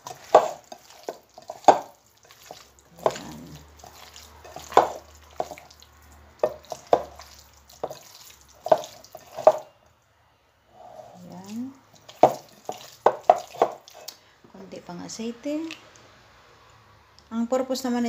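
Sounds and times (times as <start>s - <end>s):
wet squelches of mixing meat: 0.0s - 9.8s, 11.2s - 14.2s.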